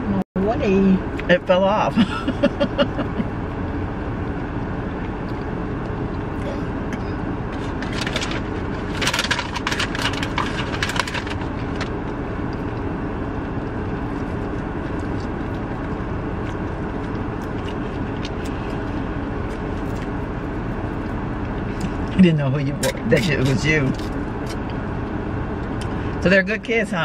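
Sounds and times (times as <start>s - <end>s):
car cabin rumble: 0.1s - 26.8s
crackling and rustling: 7.5s - 12.8s.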